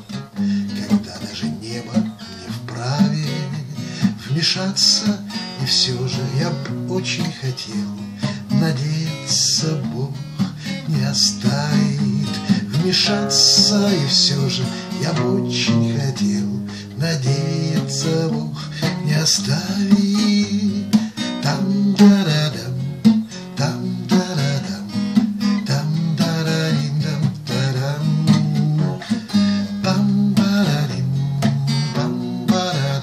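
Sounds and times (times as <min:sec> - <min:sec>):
acoustic guitar strumming: 0:00.0 - 0:33.0.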